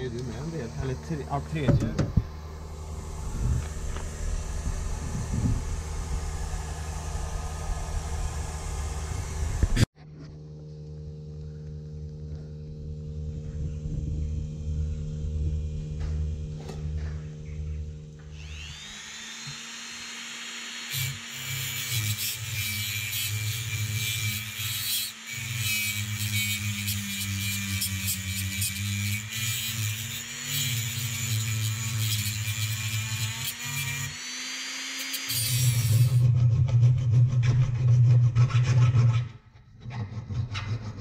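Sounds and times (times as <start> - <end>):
grinder cutting steel: 0.0 - 9.9, 18.2 - 39.2
steady low tones: 0.0 - 18.7.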